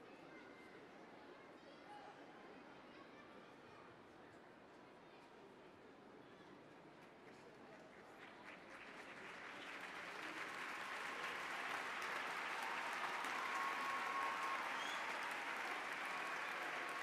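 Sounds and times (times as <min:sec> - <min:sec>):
crowd applauding: 0:08.4 - 0:17.0.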